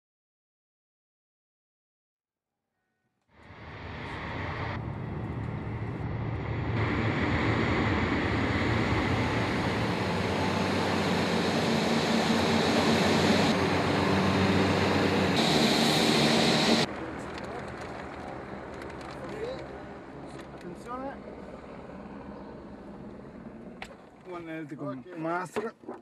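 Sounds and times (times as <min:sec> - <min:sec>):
aircraft engine humming: 0:03.4 - 0:24.3.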